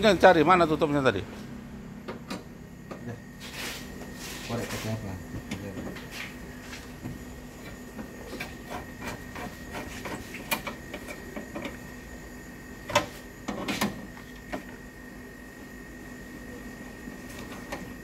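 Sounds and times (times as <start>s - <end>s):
faint steady hum: 0.0s - 18.0s
tools clicking and tapping: 7.6s - 11.8s.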